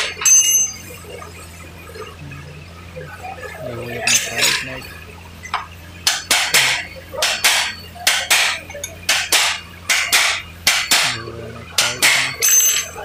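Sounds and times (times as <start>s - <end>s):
hammer striking metal: 0.0s - 0.9s, 5.5s - 13.0s
short metallic ring: 0.1s - 1.0s, 11.8s - 13.0s.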